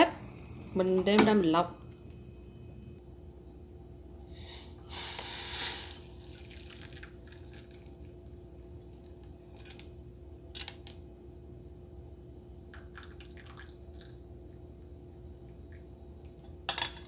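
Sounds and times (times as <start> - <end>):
faint steady hum: 0.0 - 17.0
liquid splashing pour: 5.0 - 8.1.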